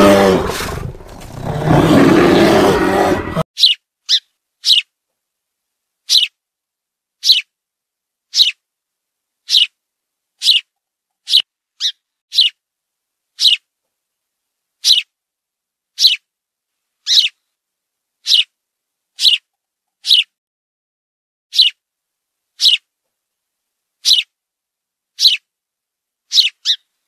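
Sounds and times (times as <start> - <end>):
bear growling: 0.0 - 3.4
songbird chirping: 0.0 - 5.0, 6.0 - 6.4, 7.2 - 7.6, 8.3 - 8.6, 9.4 - 9.8, 10.4 - 12.6, 13.4 - 13.7, 14.8 - 15.2, 16.0 - 16.3, 17.0 - 17.4, 18.2 - 18.6, 19.2 - 20.3, 21.5 - 21.8, 22.6 - 22.9, 24.0 - 24.4, 25.2 - 25.5, 26.3 - 27.0.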